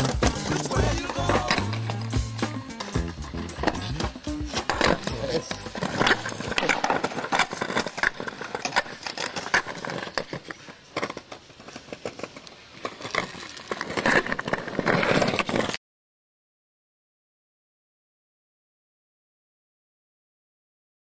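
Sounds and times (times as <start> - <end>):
skateboard rolling over pavement: 0.0 - 15.8.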